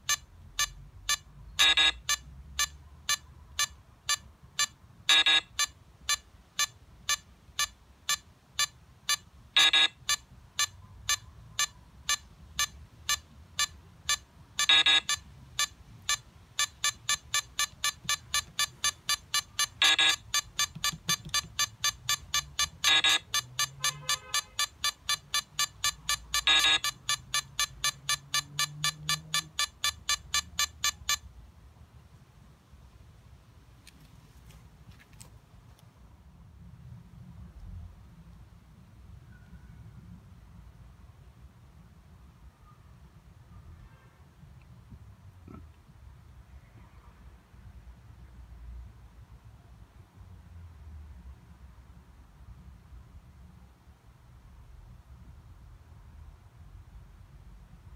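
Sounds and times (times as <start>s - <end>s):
phone countdown beeping: 0.0s - 31.3s
longer louder keypad tone: 1.6s - 2.2s, 5.1s - 5.6s, 9.6s - 10.0s, 14.1s - 31.0s.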